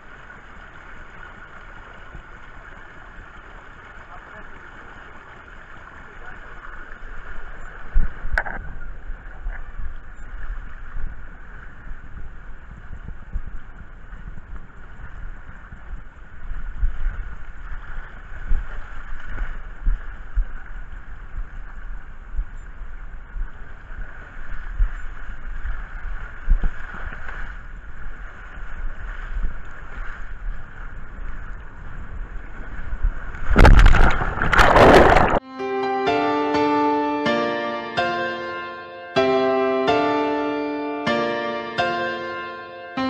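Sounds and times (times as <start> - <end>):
water rushing down a slide: 0.0 - 9.5, 23.7 - 35.4
wind on microphone: 7.0 - 35.4
loud splash into pool: 33.4 - 35.4.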